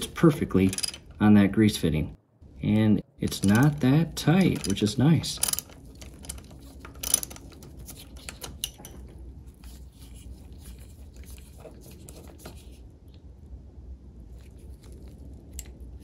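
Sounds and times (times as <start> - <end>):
ratchet socket clicks and scrapes: 0.2 - 1.1, 3.2 - 9.0.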